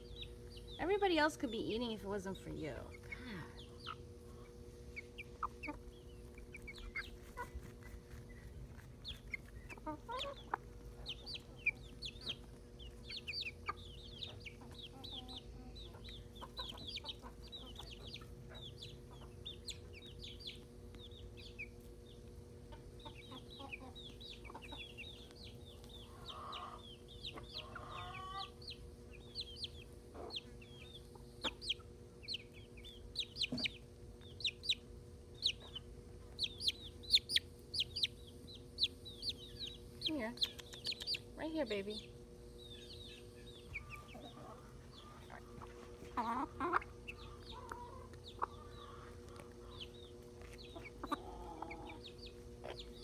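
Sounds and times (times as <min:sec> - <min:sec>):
chickens clucking softly: 0:02.9 - 0:53.0
rough chicken calls: 0:26.0 - 0:28.6, 0:50.7 - 0:53.0.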